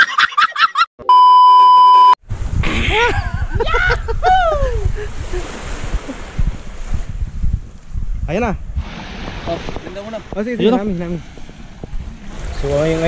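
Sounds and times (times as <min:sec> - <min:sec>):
test tone beep: 0:01.0 - 0:02.2
wind rumbling on microphone: 0:02.2 - 0:13.0
surf: 0:02.4 - 0:13.0
voices and laughter: 0:02.6 - 0:05.4.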